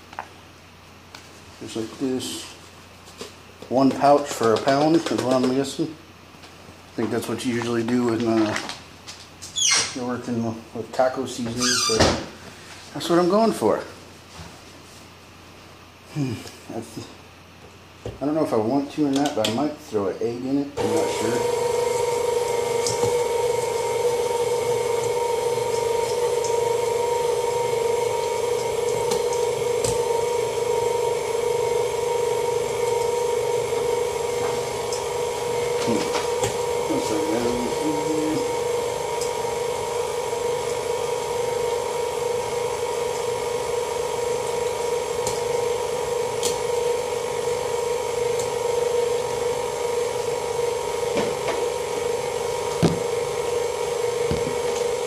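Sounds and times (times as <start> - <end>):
stand mixer motor hum: 20.8 - 55.0.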